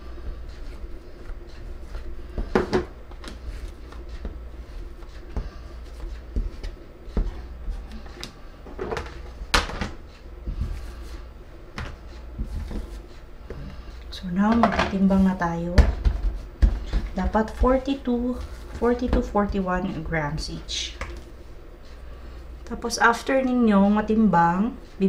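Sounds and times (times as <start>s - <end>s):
low steady hum: 0.0s - 25.0s
scraper knocking on countertop: 2.4s - 2.9s.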